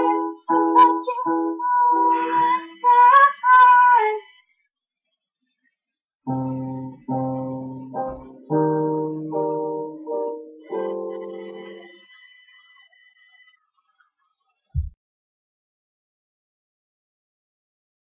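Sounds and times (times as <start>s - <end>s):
people singing: 0.0s - 4.3s.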